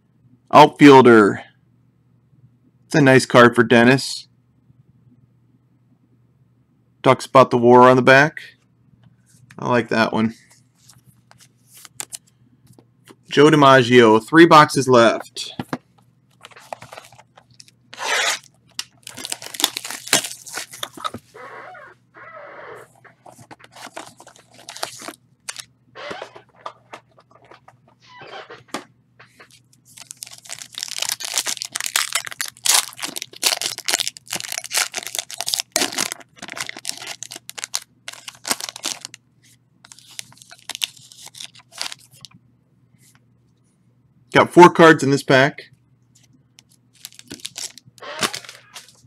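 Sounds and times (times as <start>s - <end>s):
box being opened by hand: 16.4s - 17.6s, 18.2s - 21.4s, 23.0s - 27.8s, 47.0s - 49.0s
foil pack crinkling and tearing: 16.4s - 21.2s, 23.3s - 27.6s, 29.4s - 39.2s, 39.9s - 42.3s, 46.9s - 49.0s.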